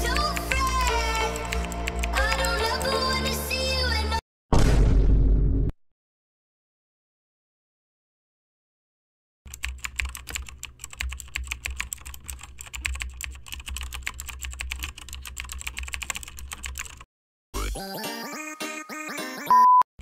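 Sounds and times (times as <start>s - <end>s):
computer keyboard typing: 0.0s - 3.0s, 9.5s - 17.1s.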